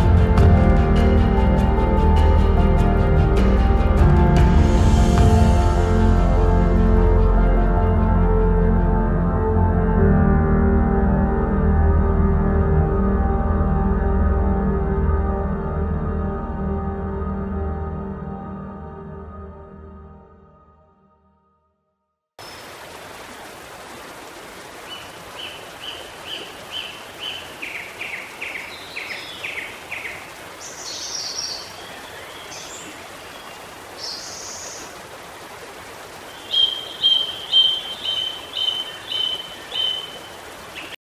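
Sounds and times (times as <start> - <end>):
running water rushing: 22.4 - 41.0
birds chirping: 24.7 - 35.4, 36.0 - 41.0.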